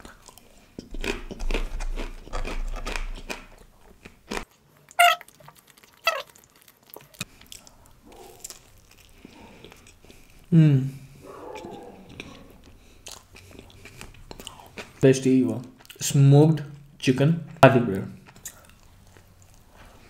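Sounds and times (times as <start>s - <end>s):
chewing crisp chips: 0.0s - 10.6s, 11.4s - 20.0s
sharp mouth sounds: 5.0s - 5.4s.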